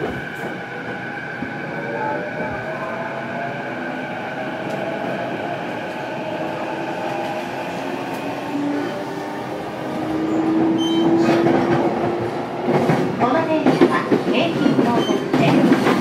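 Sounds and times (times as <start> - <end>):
train running noise: 0.0 - 16.0.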